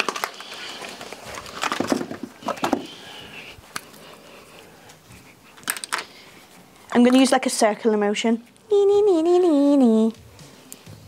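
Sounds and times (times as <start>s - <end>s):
makeup products clicking and rustling: 0.0s - 2.9s, 5.6s - 6.2s.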